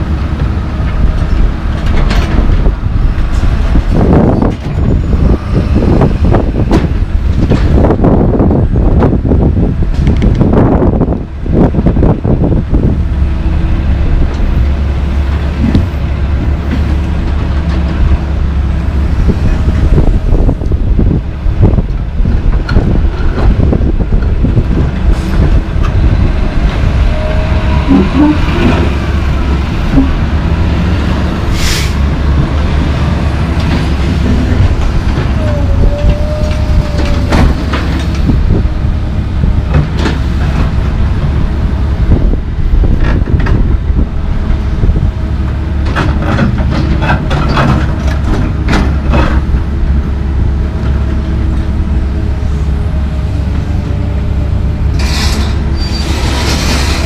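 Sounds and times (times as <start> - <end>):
excavator diesel engine rumble: 0.0 - 57.0
hydraulics whining: 0.0 - 57.0.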